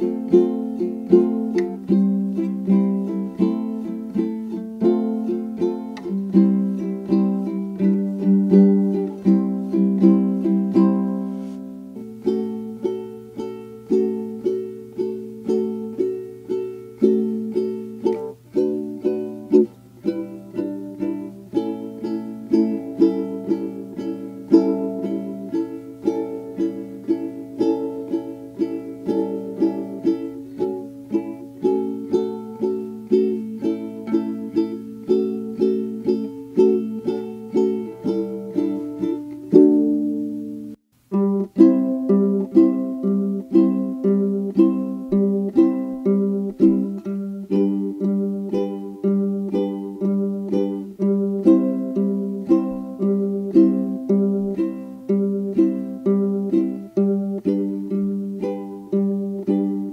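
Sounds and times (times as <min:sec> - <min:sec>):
plucked string instrumental music: 0:00.0 - 0:59.9.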